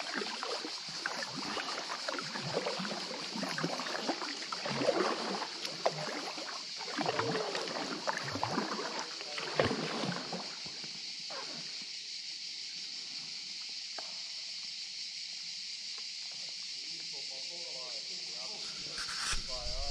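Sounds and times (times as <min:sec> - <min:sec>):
paddle strokes splashing water: 0:00.0 - 0:11.6, 0:18.6 - 0:19.9
steady high hiss: 0:17.2 - 0:19.9.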